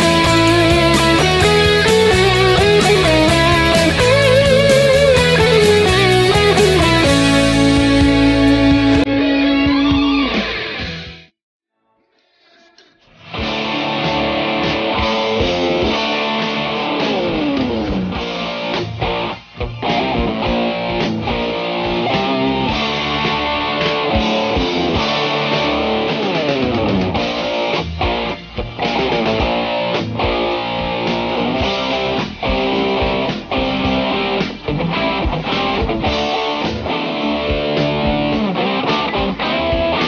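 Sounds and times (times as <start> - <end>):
distorted electric guitar lead: 0.0 - 11.3, 13.2 - 40.0.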